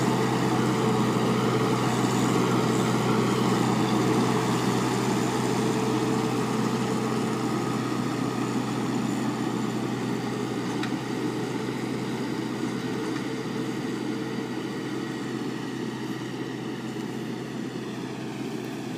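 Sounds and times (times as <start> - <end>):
rotor tilling soil: 0.0 - 14.9
tractor engine running under load: 0.0 - 18.9.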